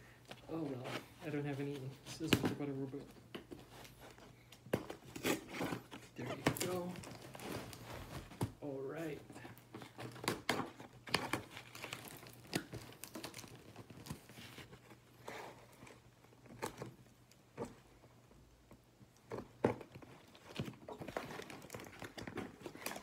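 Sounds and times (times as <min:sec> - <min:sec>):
cardboard rustling and crinkling: 0:00.1 - 0:23.0
packing tape tearing: 0:09.9 - 0:14.6.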